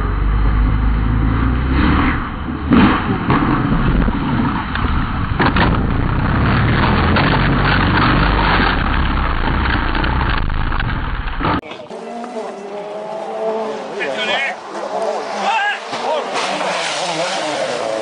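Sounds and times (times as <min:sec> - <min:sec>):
car crash impacts: 0:01.8 - 0:11.7.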